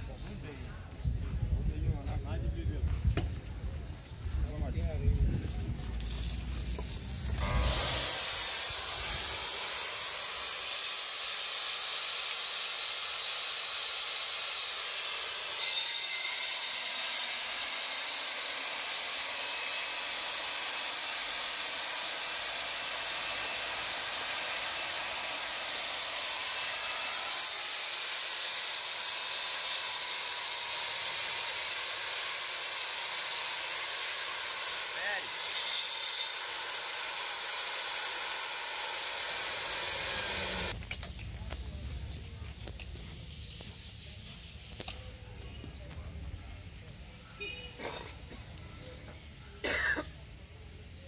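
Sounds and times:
core drill cutting asphalt: 6.0s - 40.8s.

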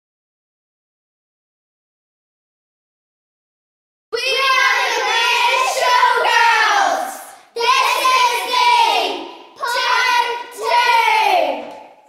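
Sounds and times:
girls singing together: 4.2s - 12.0s.

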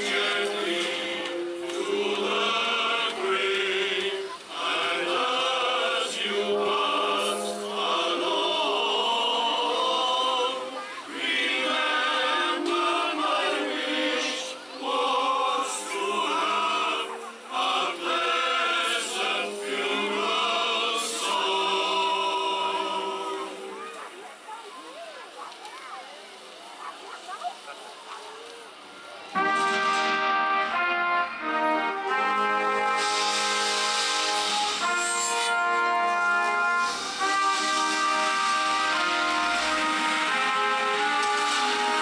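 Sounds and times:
male choir singing: 0.0s - 23.8s.

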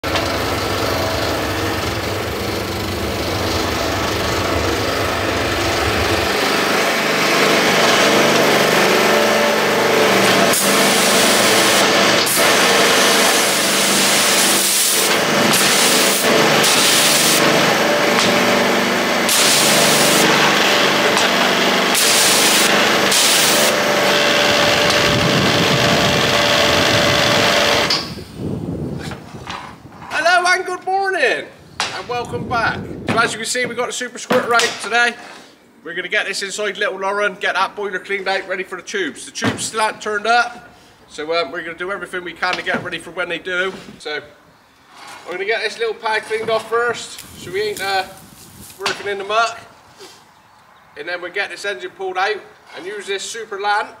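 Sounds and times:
pressure washer spraying water: 6.2s - 28.0s.

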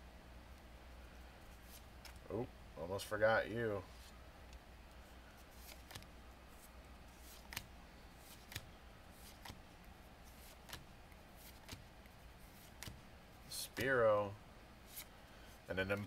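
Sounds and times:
trading cards snapping: 5.6s - 6.1s, 7.2s - 9.6s, 10.4s - 11.9s, 12.5s - 13.0s.

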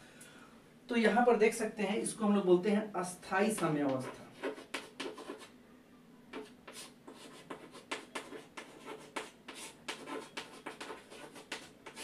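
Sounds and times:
chalk scratching on chalkboard: 3.5s - 5.5s, 6.3s - 12.0s.

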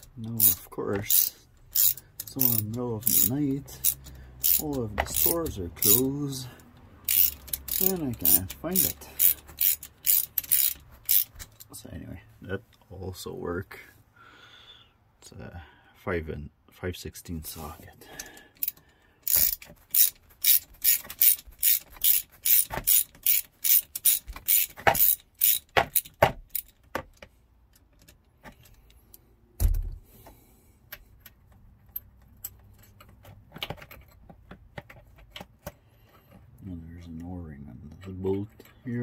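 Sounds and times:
ratchet wrench clicking: 0.0s - 11.7s, 18.2s - 27.0s.

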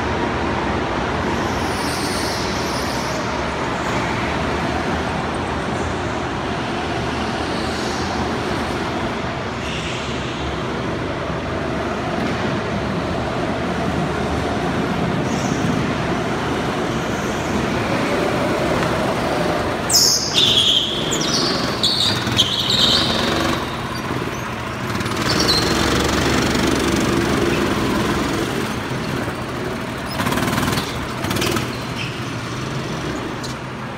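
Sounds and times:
go-kart engines droning: 0.0s - 33.9s
high tyre squeals: 1.3s - 4.3s, 16.8s - 33.9s.

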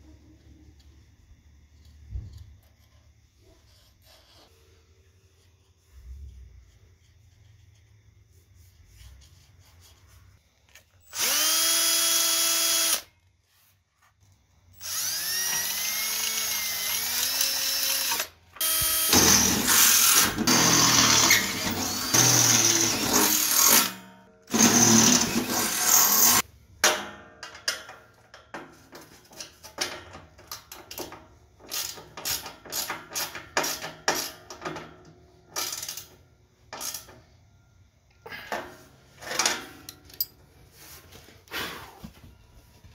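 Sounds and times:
cordless drill whirring: 11.0s - 13.1s, 14.8s - 23.7s
drill grinding into steel: 11.0s - 13.1s, 14.8s - 26.4s.

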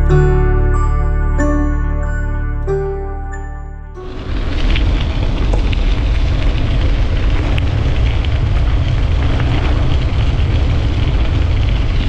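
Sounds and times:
bicycle tyres rumbling on pavement: 4.0s - 12.0s
wind buffeting microphone: 4.0s - 12.0s.

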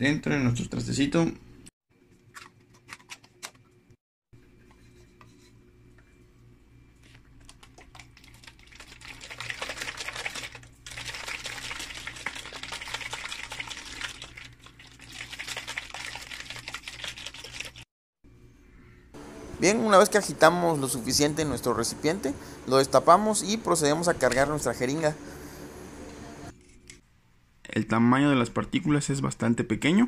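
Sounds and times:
plastic container rattling: 7.4s - 17.8s
water sloshing in shaken container: 7.4s - 17.8s.

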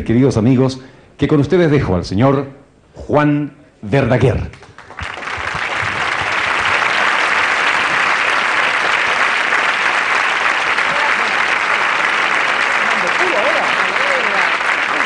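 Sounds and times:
audience applauding: 4.6s - 15.0s.

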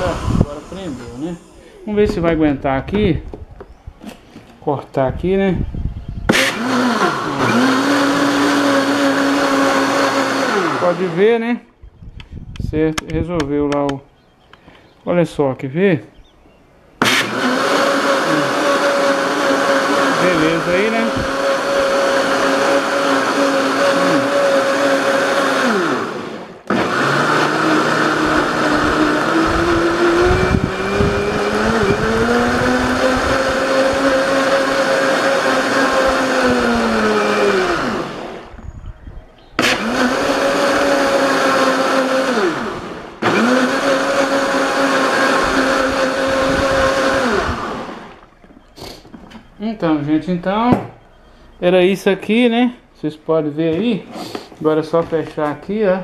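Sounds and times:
blender motor running: 0.0s - 2.3s, 6.3s - 11.3s, 17.0s - 38.5s, 39.6s - 48.6s
water churning in blender jar: 6.3s - 11.2s, 17.0s - 38.4s, 39.6s - 49.4s.

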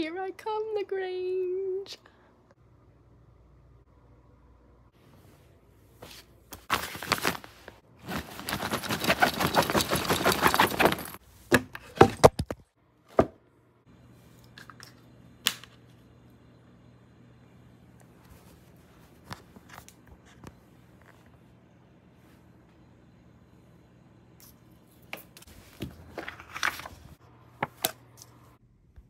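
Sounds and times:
clothes and fabric bag rustling: 6.0s - 11.3s.

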